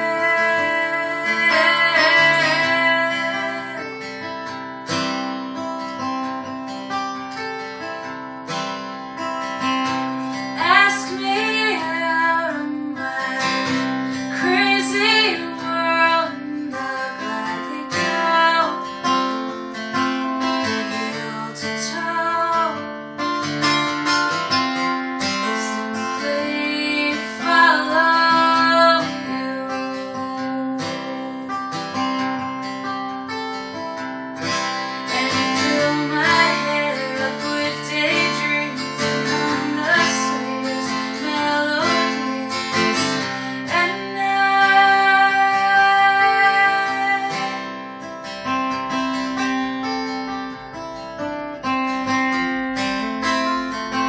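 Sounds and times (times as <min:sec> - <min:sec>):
woman singing: 0:00.0 - 0:04.4, 0:09.6 - 0:23.3, 0:25.2 - 0:31.7, 0:34.5 - 0:48.0
acoustic guitar strummed and picked: 0:00.0 - 0:54.0.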